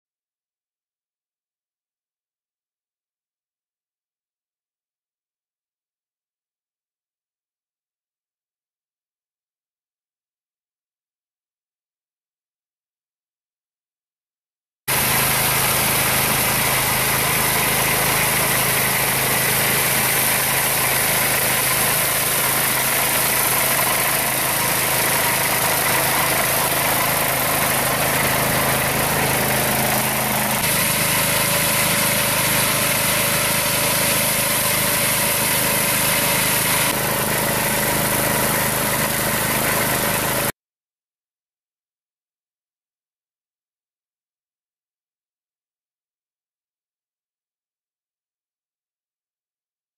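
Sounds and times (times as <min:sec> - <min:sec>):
mower cutting tall grass: 0:14.9 - 0:40.5
tractor engine humming: 0:14.9 - 0:40.5.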